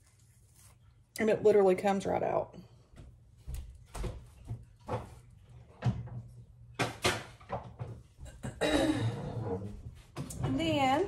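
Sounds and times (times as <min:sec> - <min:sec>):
kitchen items knocking: 0:06.8 - 0:08.6.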